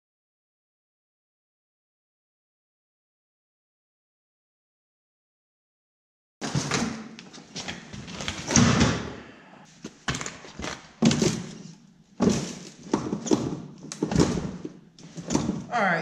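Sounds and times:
snowmobile suspension thumping and rattling: 12.2 - 15.7.

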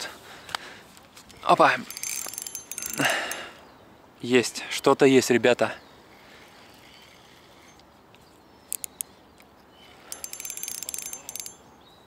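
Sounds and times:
fishing reel clicking: 1.8 - 3.4, 10.0 - 11.6.

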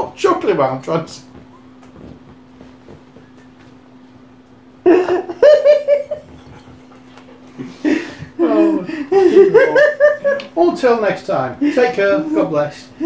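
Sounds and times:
people laughing loudly: 4.9 - 6.3, 7.7 - 10.5.

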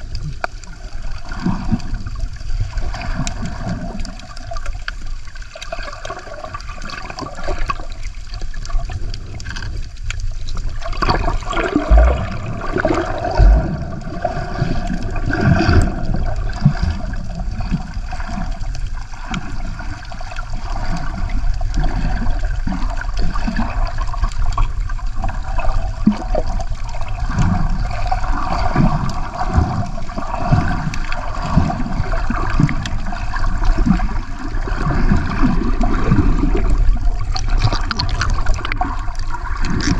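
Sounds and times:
water sloshing and gurgling: 0.0 - 39.9
low bumps: 11.6 - 14.0.

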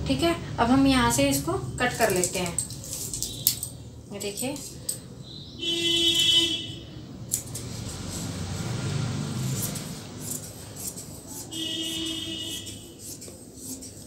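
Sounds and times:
scissors cutting fabric: 1.2 - 5.0, 7.3 - 14.0.

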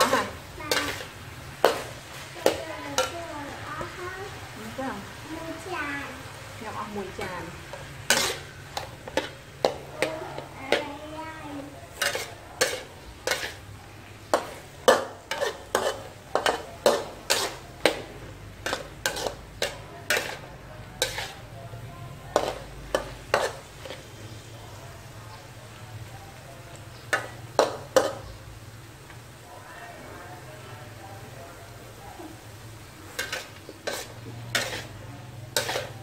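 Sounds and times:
metal spatula scraping wok: 0.0 - 3.9, 6.8 - 21.6, 22.3 - 24.5, 27.0 - 28.4, 32.5 - 36.0
faint frying sizzle: 0.0 - 36.0.

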